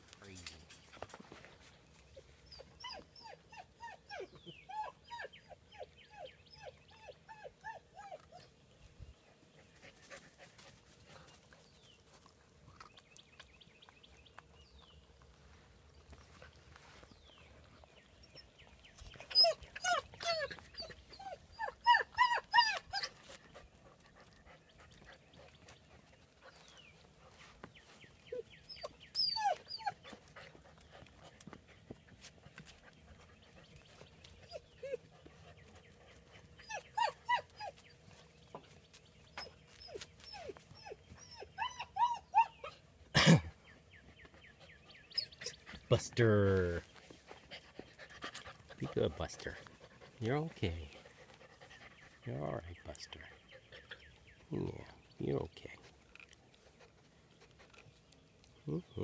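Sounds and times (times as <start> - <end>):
puppies whining and yelping: 1.9 - 8.6, 16.4 - 43.1, 43.7 - 45.9.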